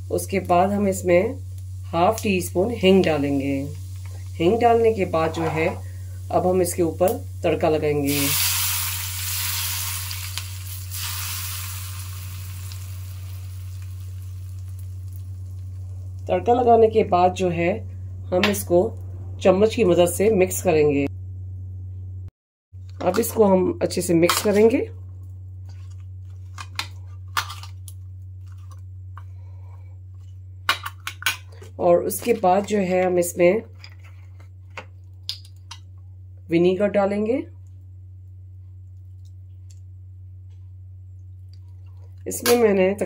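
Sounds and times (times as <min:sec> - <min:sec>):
hot oil sizzling: 0:00.0 - 0:16.6
low hum: 0:00.0 - 0:23.0
spoon scraping steel bowl: 0:05.2 - 0:05.8.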